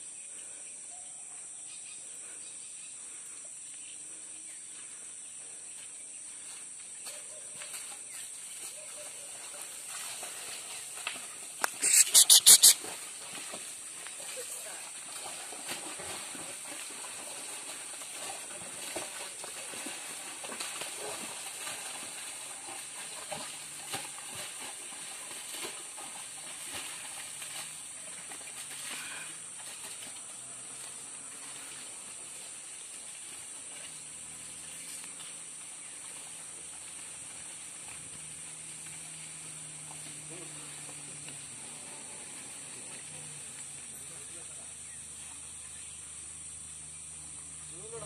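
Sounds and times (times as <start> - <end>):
crackles and rustles: 5.8 - 45.8.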